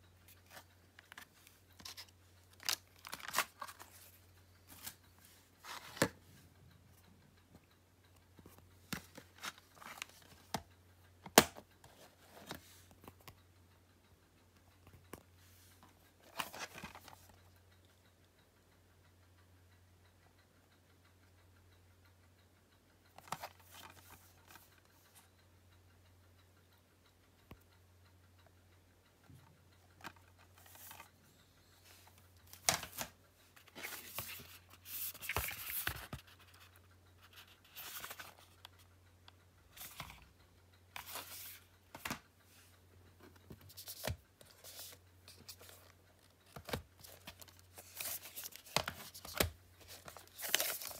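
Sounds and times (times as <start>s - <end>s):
cardboard and plastic handling: 46.5s - 50.9s.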